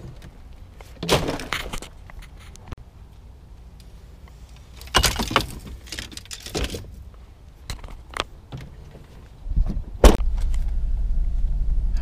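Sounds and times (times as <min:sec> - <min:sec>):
fishing gear rattling and rustling: 0:04.5 - 0:07.1.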